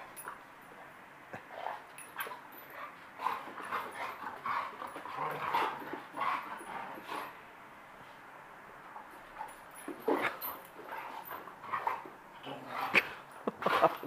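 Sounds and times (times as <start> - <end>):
dogs whining while play-fighting: 1.5 - 7.4, 9.0 - 14.0.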